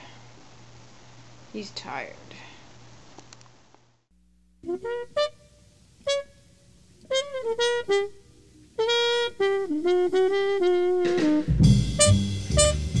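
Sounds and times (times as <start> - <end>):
solo horn melody: 4.6 - 13.0.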